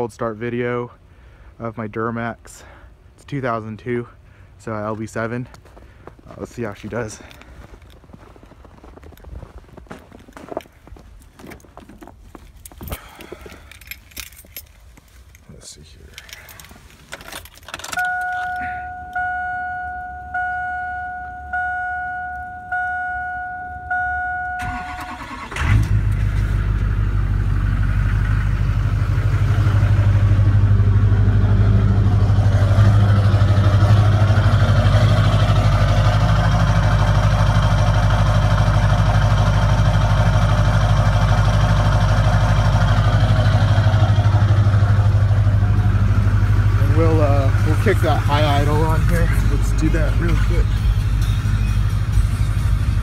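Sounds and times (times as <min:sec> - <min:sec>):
two-tone chime: 0:18.0 - 0:24.9
diesel engine idling: 0:18.1 - 0:53.0
diesel engine cranking and starting: 0:23.9 - 0:53.0.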